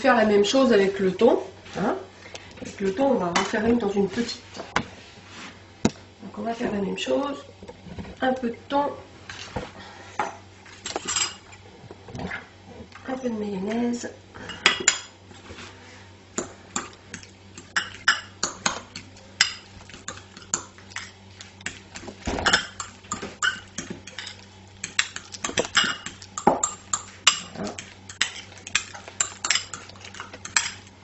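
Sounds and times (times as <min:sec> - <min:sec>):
spoon and fork clinking on bowls: 0:17.6 - 0:21.1, 0:22.4 - 0:30.9.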